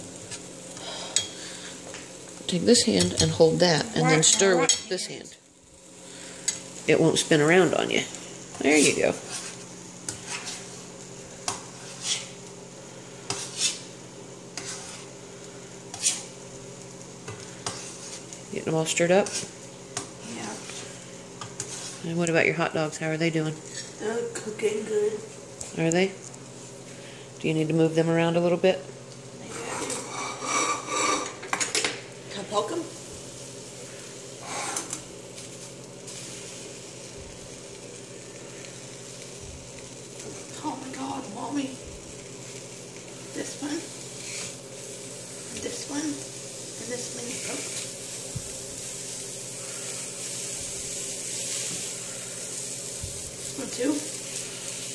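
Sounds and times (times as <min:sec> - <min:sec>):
hot dogs sizzling in a pan: 0:00.0 - 0:54.9
spoon scraping in metal saucepan: 0:14.5 - 0:15.1, 0:15.9 - 0:16.3, 0:29.6 - 0:31.6.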